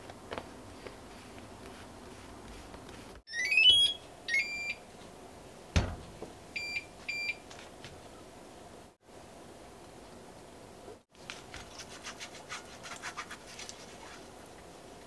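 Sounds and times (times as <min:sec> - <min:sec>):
cooktop beeps: 0:03.3 - 0:04.8
knock: 0:05.8 - 0:06.1.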